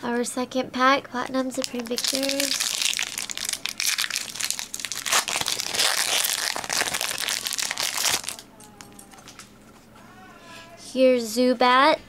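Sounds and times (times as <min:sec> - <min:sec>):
foil wrapper crinkling: 0:01.5 - 0:09.5.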